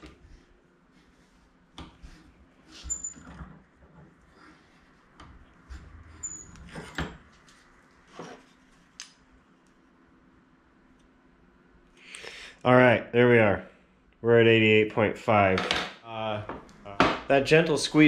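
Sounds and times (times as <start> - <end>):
brief high squeaks: 2.8 - 3.3, 6.2 - 6.6.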